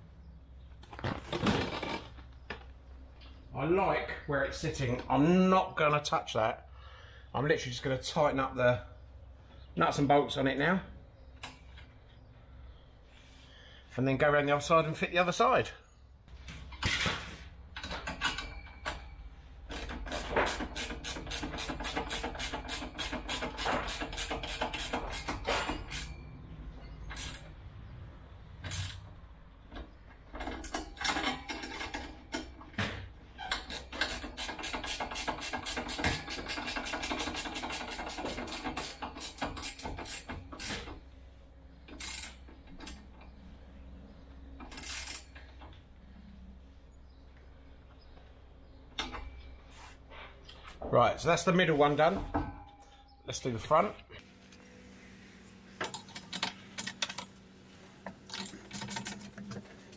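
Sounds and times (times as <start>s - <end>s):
ratchet spanner clicking: 19.7s - 26.1s, 33.6s - 40.9s, 42.0s - 42.4s, 44.7s - 45.3s.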